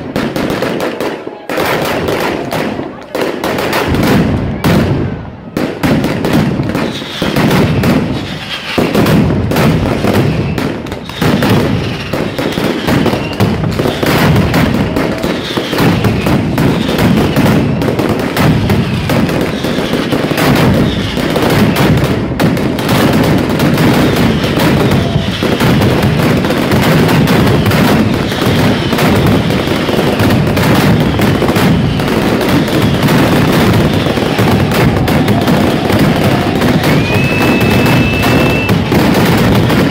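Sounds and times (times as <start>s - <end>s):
firecrackers rattling bangs: 0.0s - 39.9s
short falling whistles: 36.8s - 38.8s.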